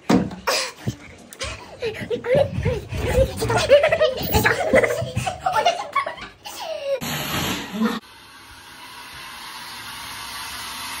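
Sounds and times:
laughter: 0:01.8 - 0:06.6
shower running: 0:07.0 - 0:11.0.

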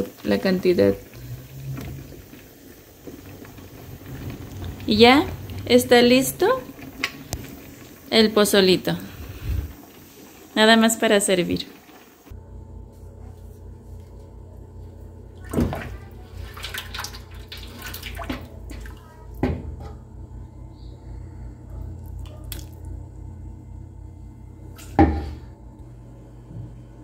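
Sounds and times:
steady low hum: 0:00.0 - 0:11.2, 0:12.2 - 0:27.0
liquid pouring and splashing: 0:00.9 - 0:08.1, 0:15.4 - 0:19.1.

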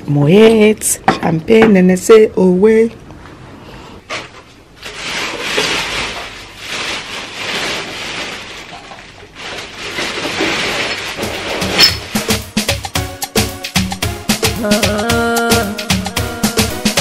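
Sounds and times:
plastic bin bag rustling: 0:04.1 - 0:13.5.

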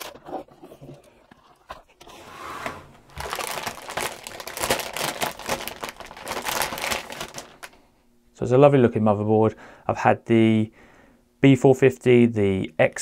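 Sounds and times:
anti-static bag crinkling: 0:03.1 - 0:07.9.

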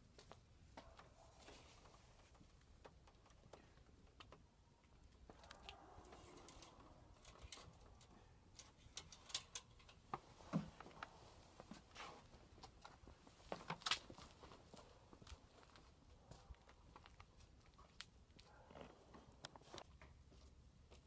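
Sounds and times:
faint clicks and taps: 0:00.2 - 0:06.9.

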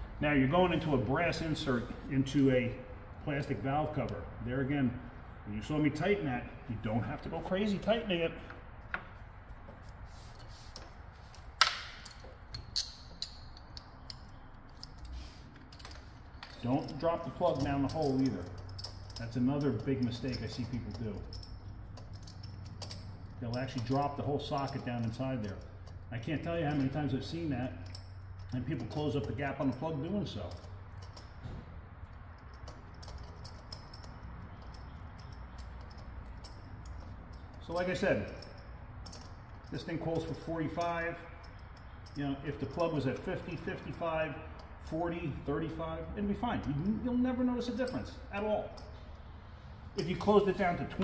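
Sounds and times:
hand tools clinking: 0:10.4 - 0:31.4, 0:32.1 - 0:45.0, 0:46.3 - 0:49.0, 0:50.0 - 0:51.0
hand tools clicking: 0:11.6 - 0:27.2.

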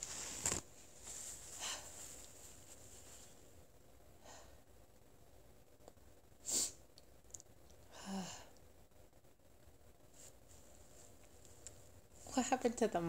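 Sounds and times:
woman breathing: 0:01.2 - 0:02.3, 0:04.2 - 0:04.8, 0:07.8 - 0:08.6
woman sighing: 0:07.9 - 0:08.6.

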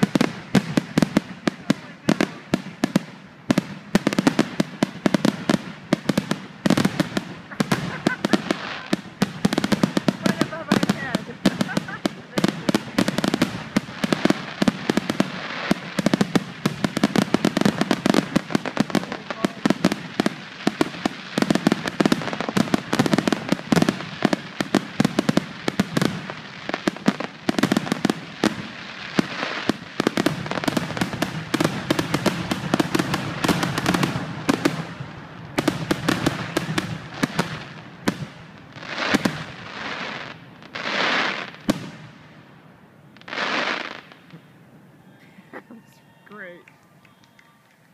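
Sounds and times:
fireworks bangs and crackling: 0:00.0 - 0:44.8.

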